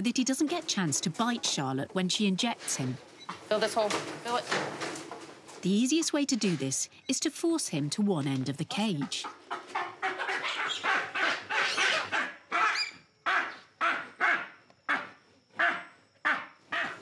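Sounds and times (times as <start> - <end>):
baboon screaming: 9.8 - 17.0.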